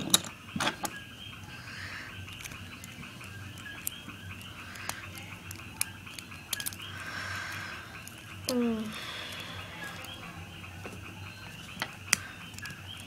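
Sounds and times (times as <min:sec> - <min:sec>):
plastic toy parts clicking: 0:02.2 - 0:08.6, 0:11.8 - 0:13.0.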